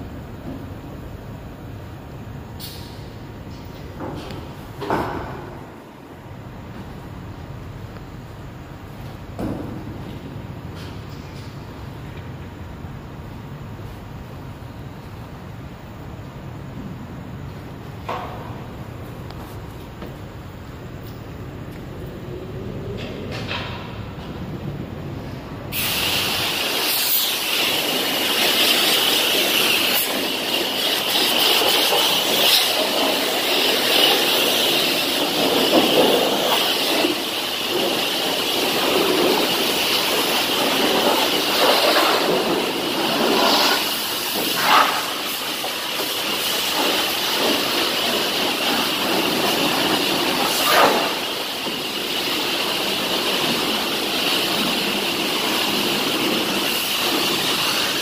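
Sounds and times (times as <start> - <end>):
pressure washer spraying water: 25.7 - 58.0.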